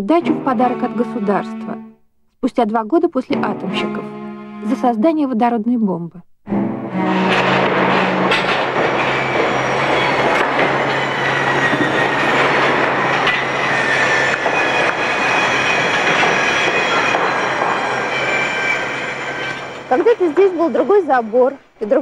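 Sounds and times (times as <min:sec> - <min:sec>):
train passing: 0:00.0 - 0:01.9, 0:06.7 - 0:22.0
high-pitched squeal: 0:06.9 - 0:21.7.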